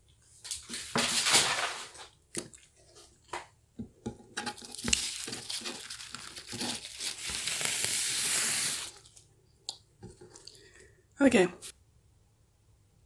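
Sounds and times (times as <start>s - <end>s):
paper napkins crinkling: 4.6s - 9.2s.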